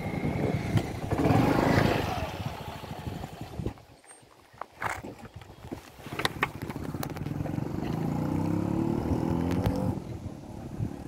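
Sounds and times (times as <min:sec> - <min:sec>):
vehicle engine accelerating: 0:00.0 - 0:03.6, 0:06.8 - 0:11.0.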